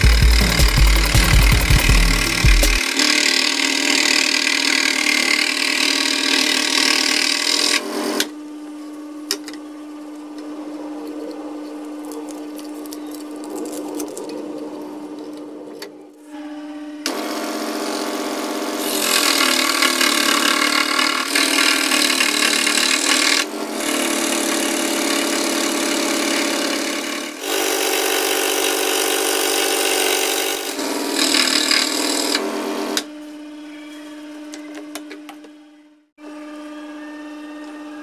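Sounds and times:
saw cutting wood: 0:00.0 - 0:08.3, 0:16.3 - 0:33.1
scroll saw motor hum: 0:00.0 - 0:26.8.

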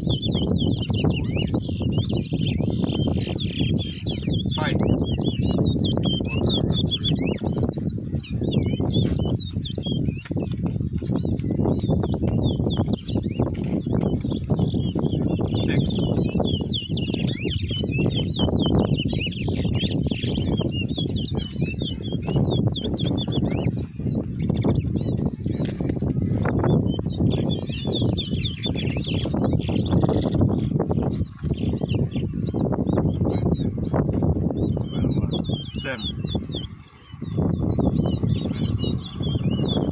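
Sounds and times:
finches singing: 0:00.0 - 0:39.9
steady low rumbling: 0:00.0 - 0:39.9.

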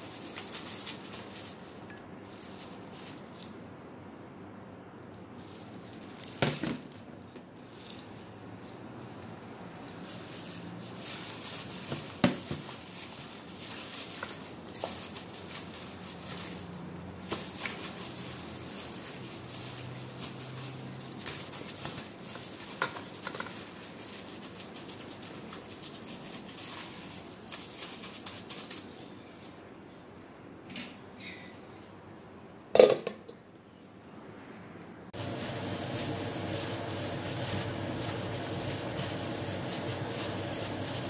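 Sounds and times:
plastic gloves crinkling: 0:00.0 - 0:03.7, 0:05.2 - 0:29.8, 0:35.2 - 0:41.0
meat squishing: 0:10.0 - 0:28.0, 0:35.2 - 0:41.0.

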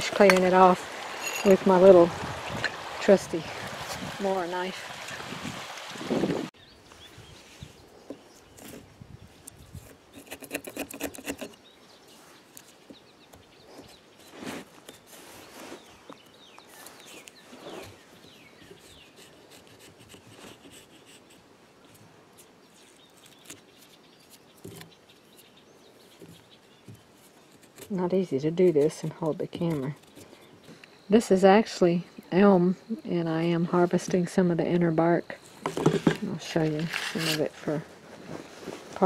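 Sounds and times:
knife scraping bark: 0:09.8 - 0:11.6, 0:18.6 - 0:26.6, 0:35.7 - 0:37.6.

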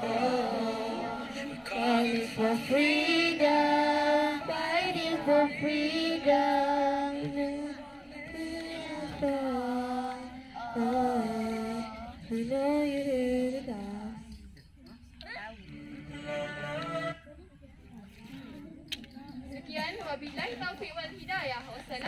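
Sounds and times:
girls singing together: 0:00.0 - 0:14.8.

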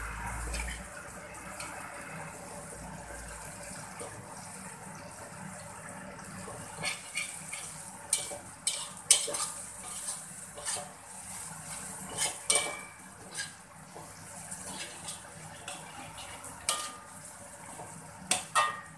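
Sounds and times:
faint frying sizzle: 0:00.0 - 0:18.9
metal spatula scraping a wok: 0:00.2 - 0:01.0, 0:06.6 - 0:17.2.

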